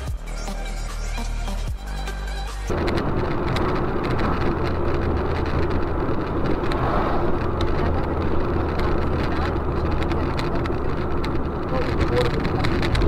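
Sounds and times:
electronic music: 0.0s - 2.7s
car road and engine noise: 0.0s - 13.0s.

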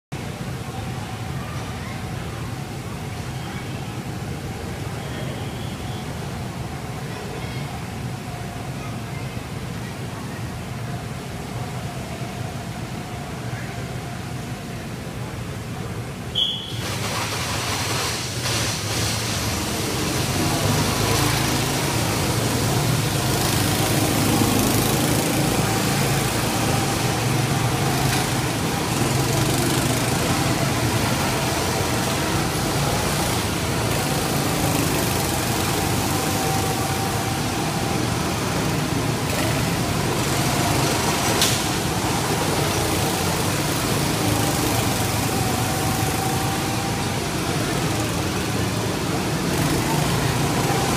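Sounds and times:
go-kart engines droning: 0.2s - 50.9s
short high beep: 16.4s - 16.8s.

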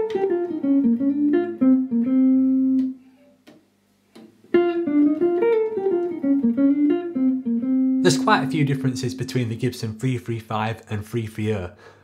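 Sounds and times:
clean electric guitar melody: 0.0s - 3.0s, 4.5s - 9.5s.

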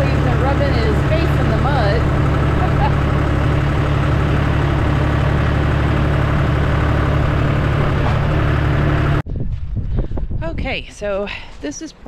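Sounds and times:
tractor engine idling: 0.0s - 9.2s.

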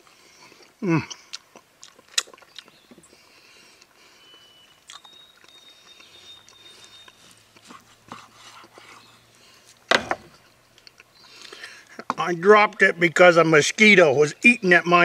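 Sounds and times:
object knocking onto board: 9.9s - 10.3s.

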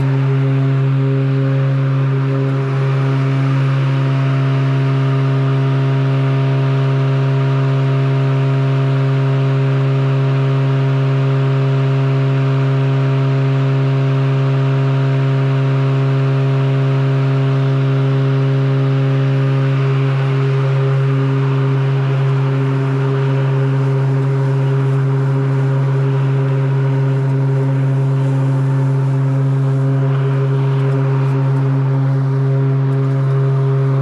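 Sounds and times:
electric lawn mower humming: 0.0s - 34.0s.

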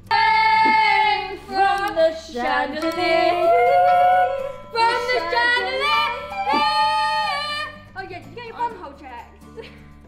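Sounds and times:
girl singing in a warbling voice: 0.0s - 7.8s.

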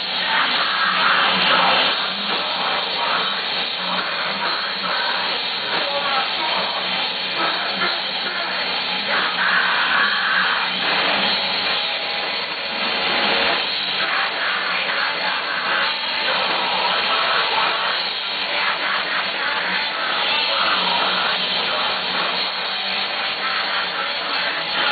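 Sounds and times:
bass guitar: 0.0s - 24.9s
drums: 0.0s - 24.9s
electric guitars: 0.0s - 24.9s
person singing: 13.8s - 24.9s.

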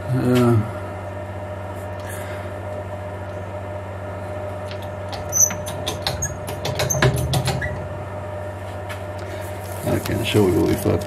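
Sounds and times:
steady low hum: 0.0s - 11.0s
sharp clicks and knocks on machine: 4.7s - 7.8s.

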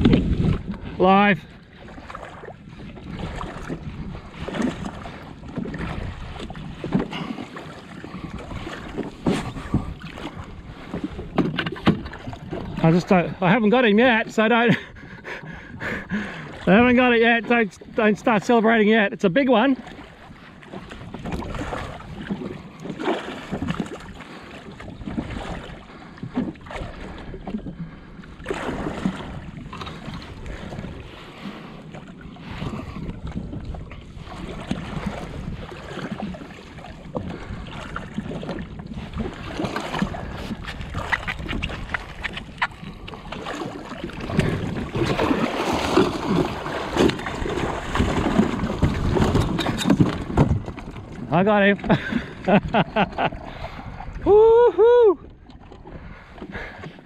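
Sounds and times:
wind buffeting microphone: 0.0s - 18.0s, 19.8s - 57.0s
water slapping against hull: 0.0s - 57.0s
fish thrashing and splashing: 19.8s - 31.1s, 34.3s - 53.5s.

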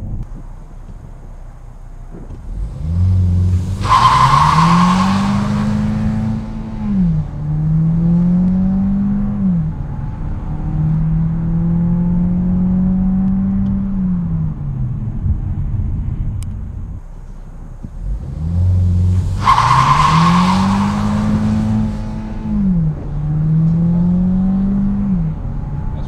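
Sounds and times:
car engine accelerating: 0.0s - 26.0s
tyres screeching: 3.3s - 7.1s, 18.8s - 22.8s.

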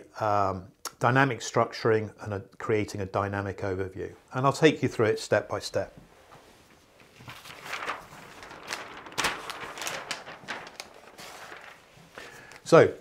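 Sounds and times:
shuffling: 6.0s - 13.0s
large paper sheets rustling: 6.1s - 13.0s.

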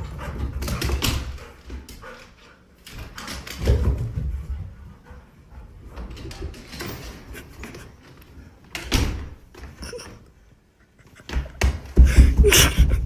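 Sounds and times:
dog running up carpeted stairs: 0.0s - 10.0s, 11.3s - 13.0s.

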